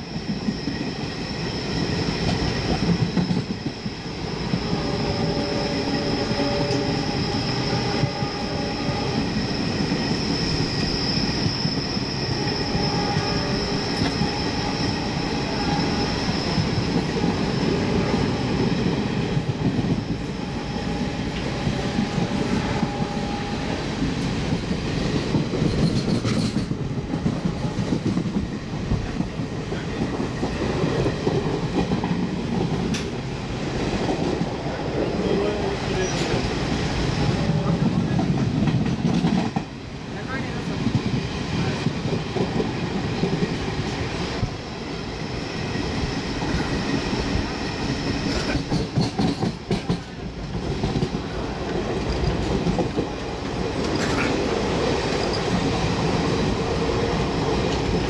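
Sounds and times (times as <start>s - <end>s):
train wheel and coach rumble: 0.0s - 58.0s
high wheel squeal: 0.1s - 19.4s, 34.6s - 38.0s.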